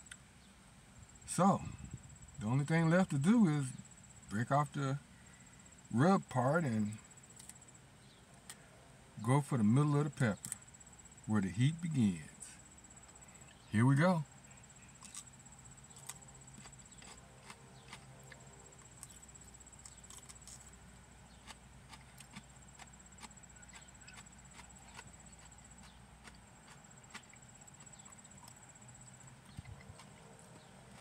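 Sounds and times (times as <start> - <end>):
chewing pepper: 14.8 - 31.0.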